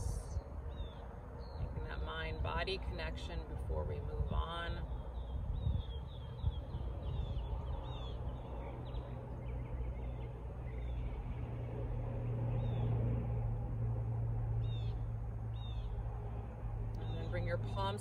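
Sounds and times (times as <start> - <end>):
small birds chirping: 4.3 - 13.2, 14.6 - 16.1, 16.9 - 18.0.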